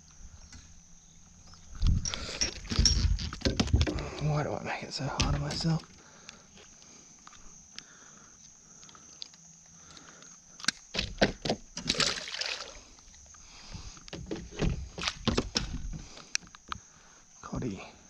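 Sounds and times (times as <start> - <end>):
water splashing: 11.8 - 12.9.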